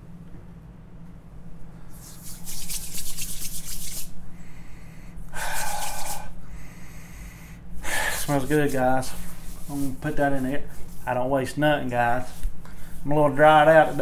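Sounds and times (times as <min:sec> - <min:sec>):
man sniffing: 0:04.4 - 0:08.3.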